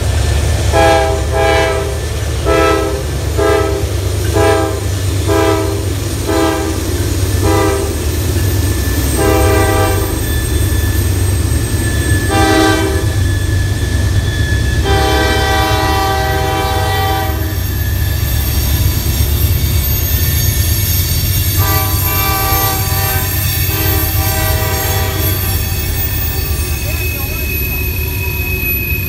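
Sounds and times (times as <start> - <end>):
passing train rumble: 0.0 - 29.0
locomotive air horn blasts: 0.7 - 6.8, 7.4 - 8.0, 9.2 - 10.2, 12.3 - 13.2, 14.8 - 17.6, 21.6 - 25.6.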